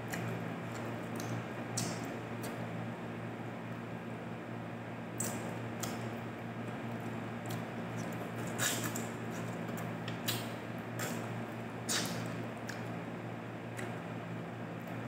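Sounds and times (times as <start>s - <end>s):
steady low hum: 0.0s - 15.0s
wet lip and finger smacks: 5.2s - 6.0s, 7.5s - 9.5s, 11.9s - 12.9s.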